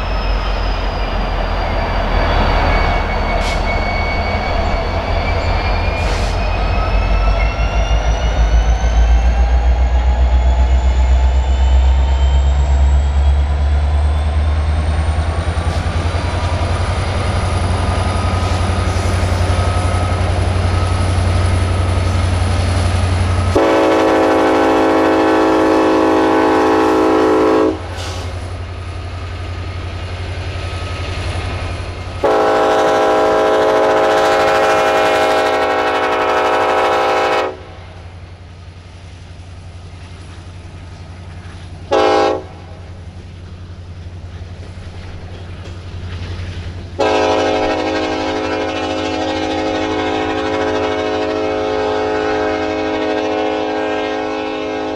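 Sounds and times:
locomotive engine rumble and whine: 0.0 - 54.9
train running noise: 0.0 - 54.9
locomotive air horn: 23.5 - 28.4, 32.2 - 37.8, 41.9 - 42.7, 47.0 - 54.9.

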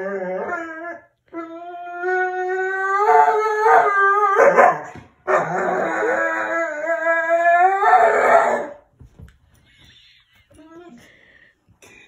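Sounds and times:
dog howling: 0.0 - 8.8
man howling: 5.3 - 8.8.

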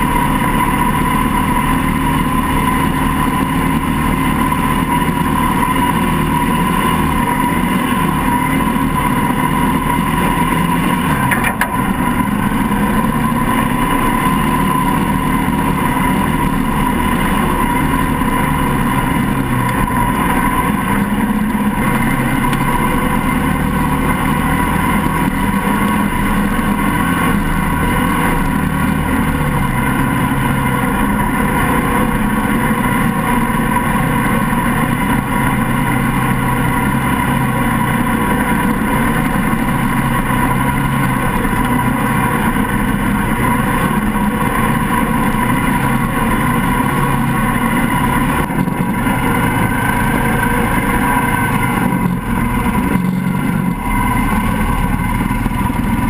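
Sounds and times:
buggy engine running: 0.0 - 56.0.

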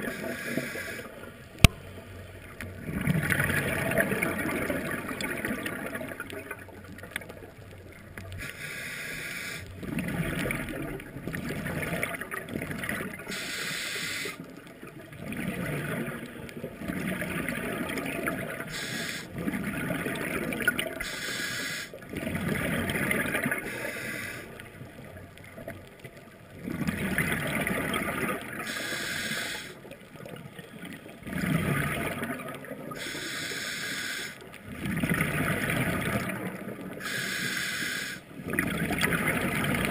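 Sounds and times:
hissing regulator inhale: 0.0 - 1.2, 8.4 - 9.7, 13.3 - 14.4, 18.7 - 19.4, 21.0 - 22.0, 23.6 - 24.6, 28.6 - 29.8, 33.0 - 34.4, 37.0 - 38.3
gurgling exhaled bubbles: 2.5 - 8.5, 9.7 - 13.4, 14.3 - 21.1, 22.0 - 25.9, 26.5 - 29.0, 29.6 - 33.1, 34.6 - 37.1, 38.4 - 39.9.

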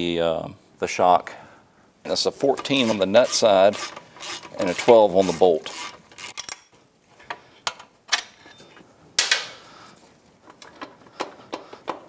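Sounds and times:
hand tools clicking and knocking: 2.4 - 8.4, 10.5 - 12.0.

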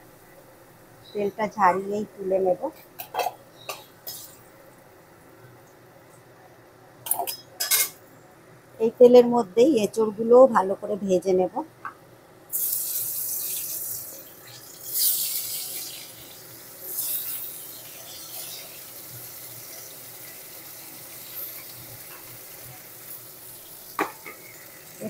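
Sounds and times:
food sizzling in hot oil: 1.0 - 5.3, 12.5 - 25.0.

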